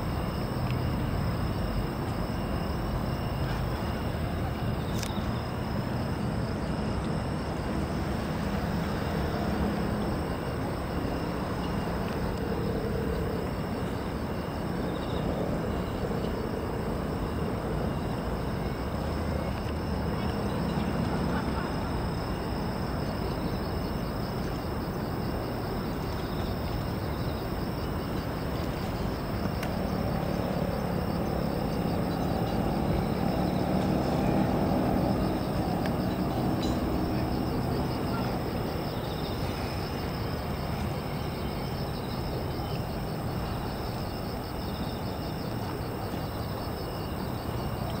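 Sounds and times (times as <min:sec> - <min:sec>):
city traffic rumble: 0:00.0 - 0:48.0
insects chirping: 0:00.0 - 0:48.0
vehicle passing: 0:15.2 - 0:23.2, 0:28.3 - 0:41.4.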